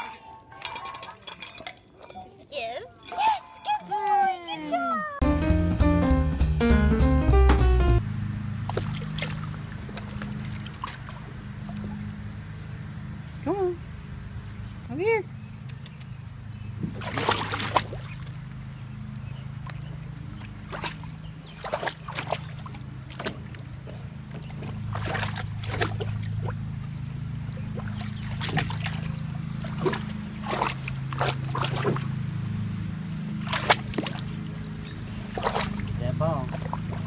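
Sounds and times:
dog splashing in water: 8.6 - 12.1, 16.8 - 18.6, 19.6 - 32.8, 33.4 - 37.0.

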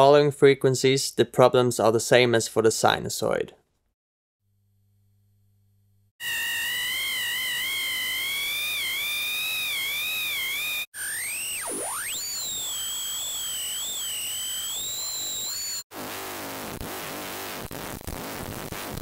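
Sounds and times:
high whistling electronic tones: 6.2 - 15.8
tone swooping down and up: 6.2 - 15.8.

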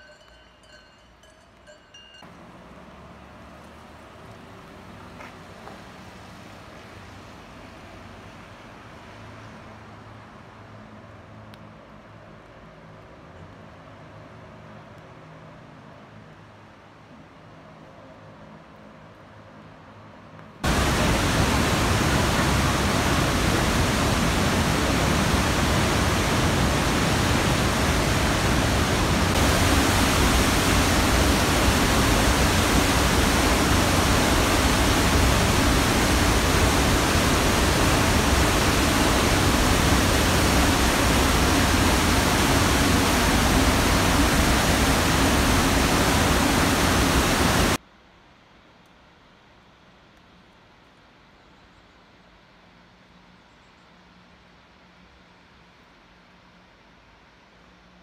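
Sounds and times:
waterfall rushing: 20.6 - 47.8.

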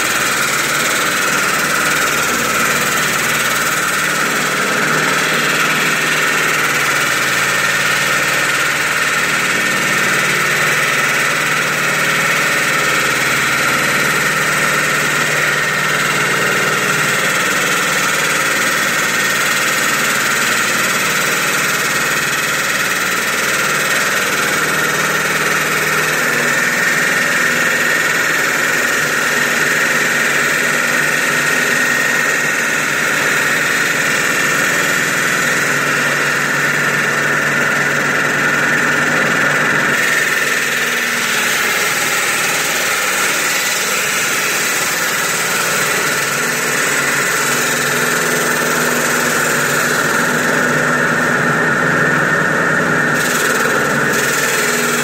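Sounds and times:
machine drone: 0.0 - 21.0, 21.9 - 55.0
concrete saw grinding whine: 0.0 - 55.0.

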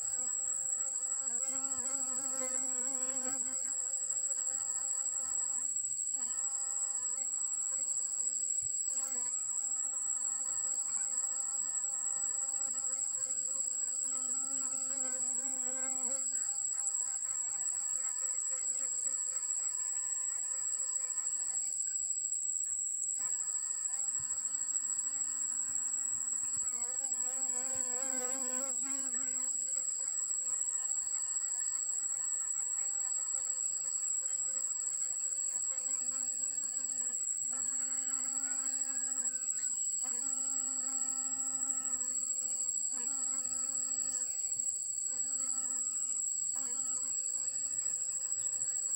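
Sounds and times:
bee buzzing: 0.0 - 8.3, 23.2 - 48.9.

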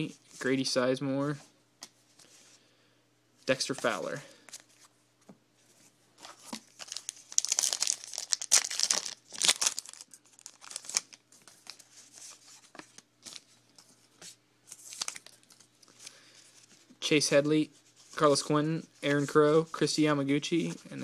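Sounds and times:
cards rustling: 3.5 - 4.9, 6.2 - 16.9
card pack wrapper crinkling and tearing: 6.4 - 13.5, 14.7 - 16.1.

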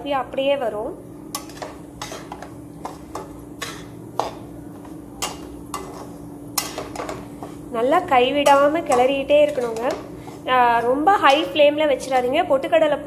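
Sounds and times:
steady low hum: 0.0 - 13.0
metal spatula scraping a pan: 1.3 - 11.6.

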